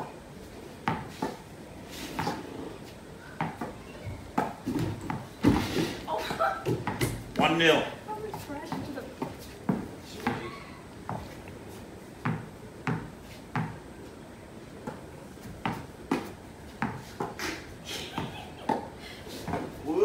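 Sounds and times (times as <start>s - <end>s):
tennis ball bouncing on wooden deck: 3.4s - 5.6s, 6.6s - 7.4s, 12.2s - 13.8s.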